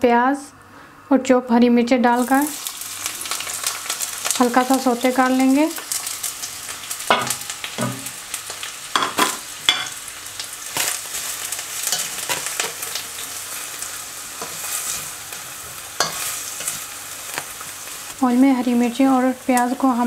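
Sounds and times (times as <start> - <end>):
onions sizzling in hot oil: 2.2 - 20.0
spatula scraping a wok: 10.8 - 18.2.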